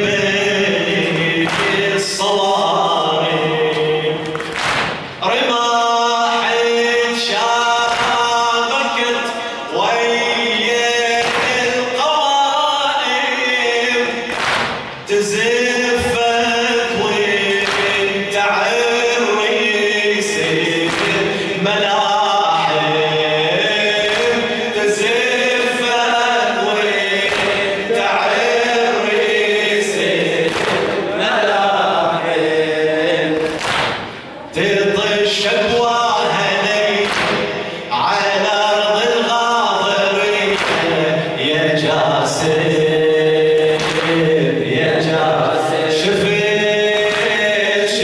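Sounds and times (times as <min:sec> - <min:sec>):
man chanting into microphone: 0:00.0 - 0:33.7, 0:34.3 - 0:48.0
group of voices singing along: 0:00.0 - 0:48.0.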